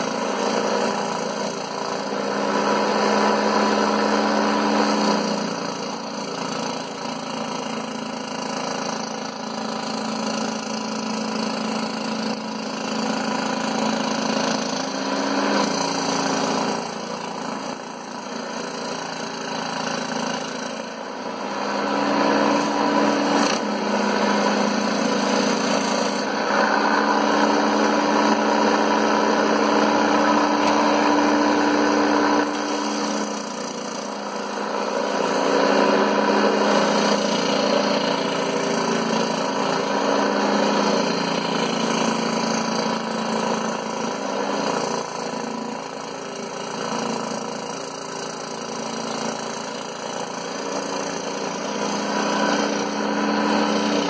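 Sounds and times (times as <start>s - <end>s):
scroll saw cutting board: 0.0s - 54.0s.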